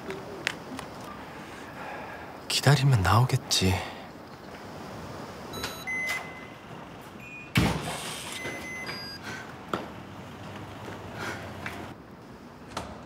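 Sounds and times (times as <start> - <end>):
electronic door lock beeps: 5.5 - 6.6, 7.2 - 7.6, 8.4 - 9.2.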